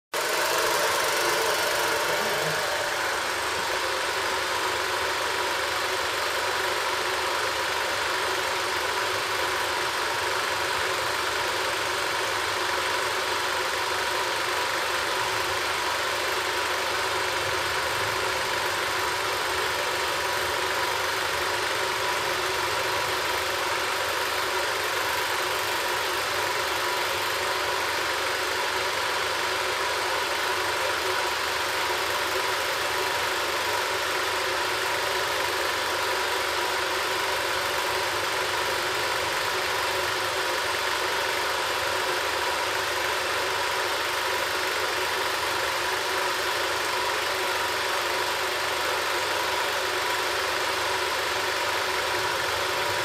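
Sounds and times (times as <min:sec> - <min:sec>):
film projector whirring: 0:00.0 - 0:53.0.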